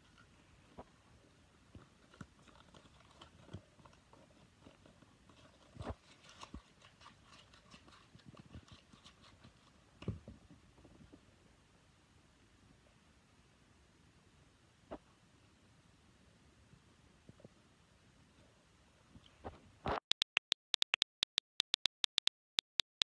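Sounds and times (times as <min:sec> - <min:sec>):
small clicks and rustles: 0:01.6 - 0:11.3.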